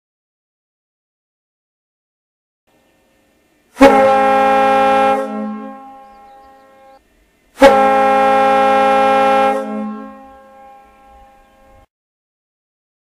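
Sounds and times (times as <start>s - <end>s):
ship's air horn blasts: 3.7s - 7.0s, 7.6s - 11.9s.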